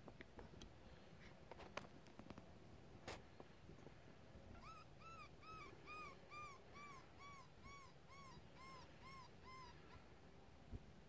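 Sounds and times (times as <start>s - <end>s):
coyote-style whimpering: 4.6s - 10.0s.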